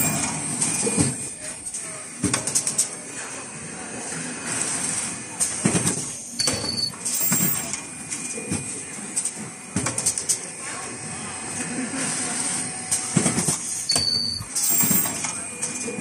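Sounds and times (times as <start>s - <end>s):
machine clacks and knocks: 5.5s - 7.8s, 13.1s - 15.3s.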